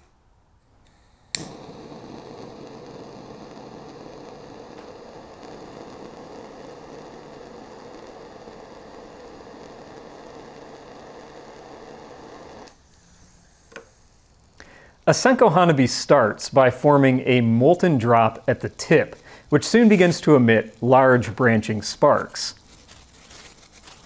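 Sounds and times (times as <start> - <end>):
lighter clicking: 0.8 - 12.8
lighter flame hissing: 0.8 - 22.6.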